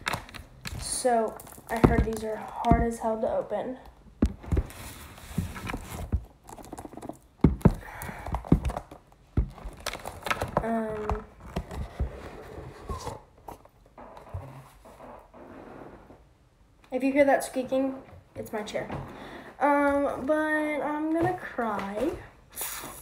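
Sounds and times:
cardboard and plastic scraping: 0.0 - 3.0, 4.2 - 16.2.

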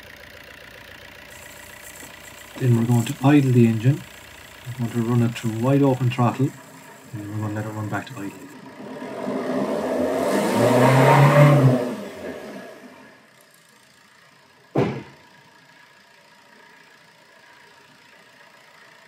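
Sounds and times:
diesel engine revving: 0.0 - 13.4.

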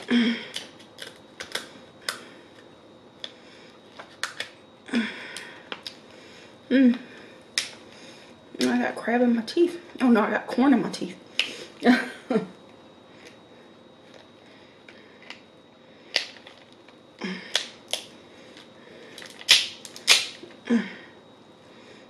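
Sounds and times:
crab shell cracking: 0.5 - 2.3, 17.5 - 18.1, 19.2 - 20.4.

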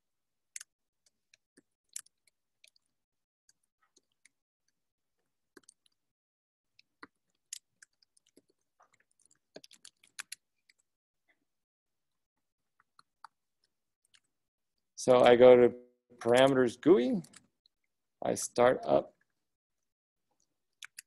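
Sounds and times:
computer keyboard typing: 20.8 - 21.0.

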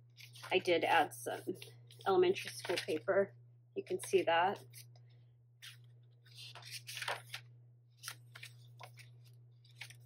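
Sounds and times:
paper pages rustling: 0.2 - 0.7, 1.4 - 3.0, 5.6 - 10.0.

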